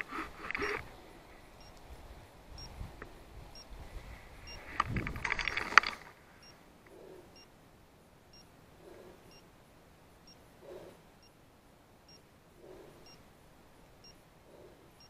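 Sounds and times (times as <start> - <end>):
brush and leaves rustling: 0.0 - 6.4.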